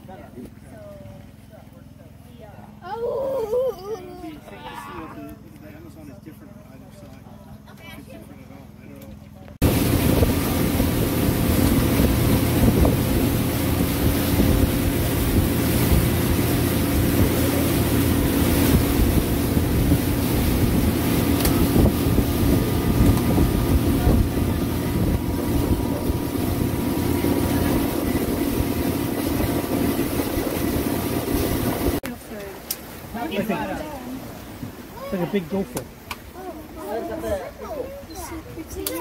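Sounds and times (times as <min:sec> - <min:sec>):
motorboat engine humming: 0:00.0 - 0:39.0
wind buffeting microphone: 0:09.6 - 0:32.0.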